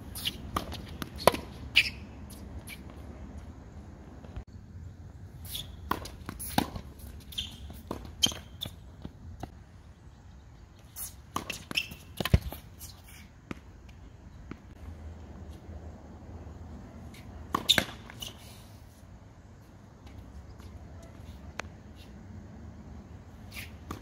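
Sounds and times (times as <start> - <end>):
shoes scuffing on court: 0.0 - 3.6, 5.4 - 9.6, 10.8 - 15.7
racket hitting tennis ball: 0.1 - 2.9, 5.4 - 9.6, 11.0 - 13.7, 17.1 - 18.4, 23.5 - 24.0
tennis ball bouncing: 0.2 - 2.9, 5.8 - 9.6, 11.3 - 12.7, 17.4 - 18.2.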